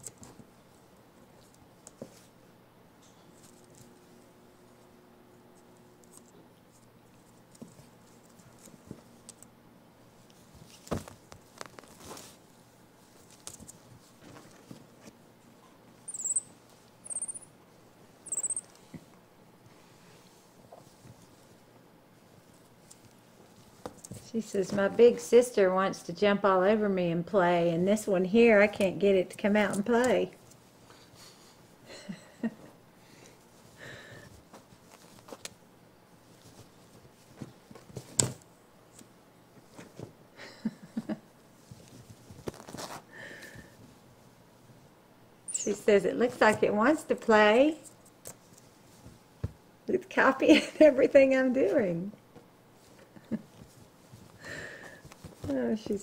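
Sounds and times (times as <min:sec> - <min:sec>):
faint rustling on bedding: 0:10.1 - 0:15.3, 0:33.4 - 0:38.1, 0:48.4 - 0:49.7, 0:52.7 - 0:56.0
monkey squeaking: 0:16.1 - 0:17.4, 0:18.3 - 0:18.7, 0:45.5 - 0:45.8.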